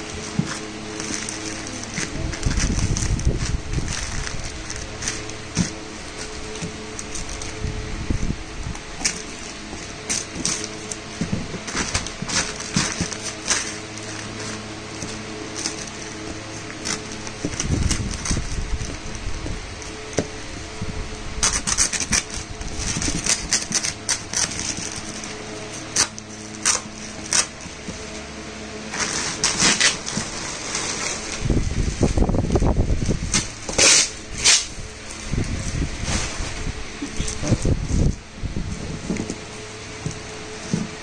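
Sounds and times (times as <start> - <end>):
plastic sack rustling: 0.0 - 41.0
scissors cutting: 11.7 - 19.0, 21.4 - 27.7.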